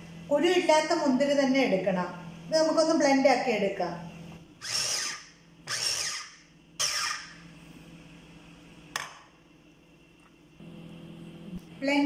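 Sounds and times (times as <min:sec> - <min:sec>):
food chopper motor whirring: 0:04.6 - 0:07.4.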